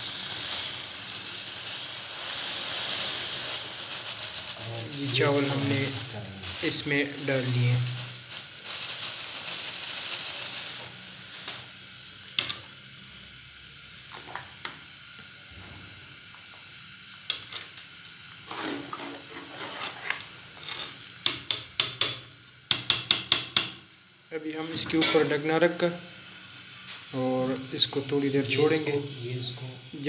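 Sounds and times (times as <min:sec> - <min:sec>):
boiling pot hissing: 0:00.0 - 0:30.0
metal spoon scraping pot: 0:18.5 - 0:21.0.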